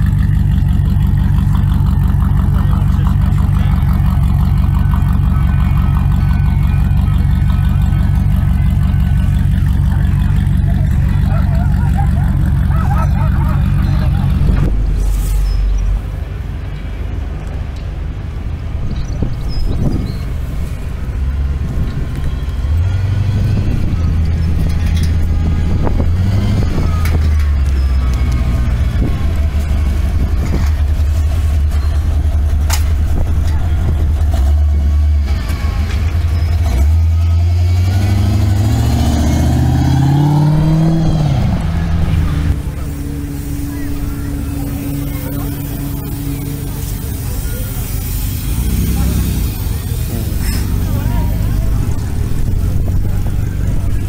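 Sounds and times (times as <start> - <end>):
car engine at low revs: 0.0 - 54.0.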